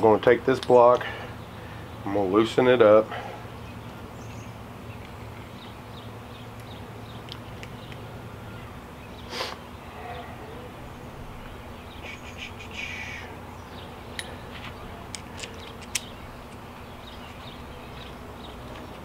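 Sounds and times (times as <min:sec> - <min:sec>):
low background hum: 0:00.0 - 0:19.0
sharp metal clicks: 0:15.1 - 0:17.4.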